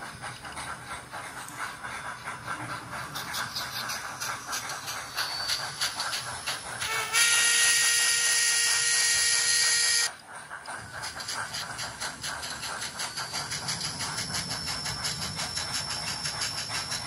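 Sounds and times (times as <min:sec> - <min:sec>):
rhythmic exhaust chuffs: 0:00.0 - 0:17.0
steam whistle blast: 0:06.9 - 0:10.1.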